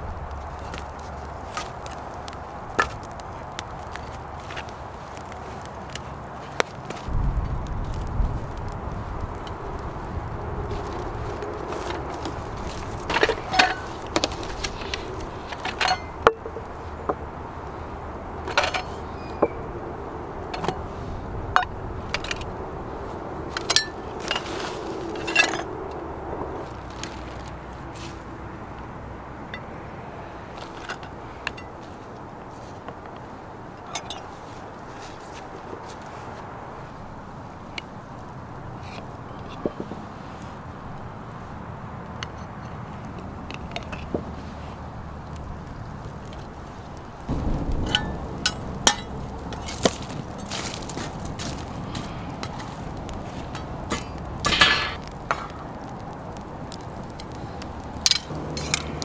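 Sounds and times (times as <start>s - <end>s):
wood fire crackling: 0.0s - 59.0s
metal grate scraping and clanking: 11.7s - 16.6s, 53.4s - 55.5s
steady background hiss: 44.0s - 59.0s.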